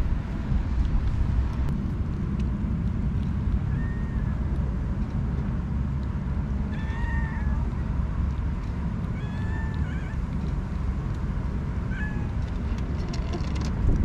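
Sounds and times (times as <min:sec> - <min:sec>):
wind buffeting microphone: 0:00.0 - 0:14.0
cat meow: 0:03.7 - 0:04.4, 0:06.7 - 0:07.8, 0:09.1 - 0:10.3, 0:11.9 - 0:12.4.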